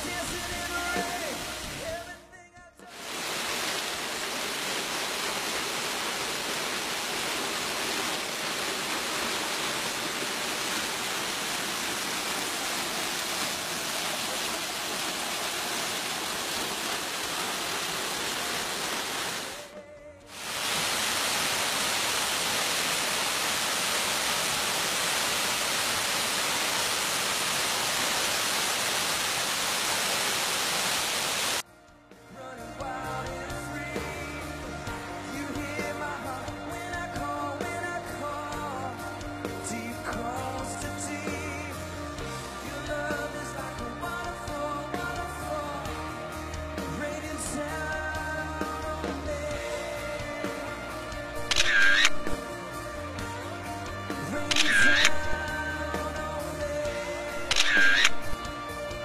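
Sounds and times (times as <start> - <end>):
waterfall rushing: 0.0 - 2.2, 2.9 - 31.6, 33.5 - 59.0.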